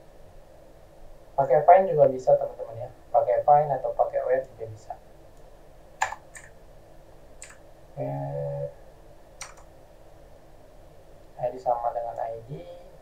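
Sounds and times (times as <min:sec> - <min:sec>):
steady humming tone: 0:00.0 - 0:13.0
keyboard keystrokes: 0:06.0 - 0:06.5, 0:07.4 - 0:07.6, 0:09.4 - 0:09.7.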